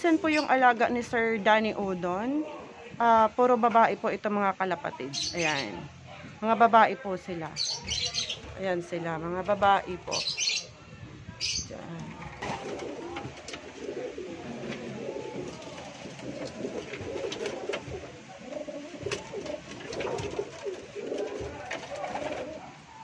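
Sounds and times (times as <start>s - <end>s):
pigeons cooing: 11.4s - 23.0s.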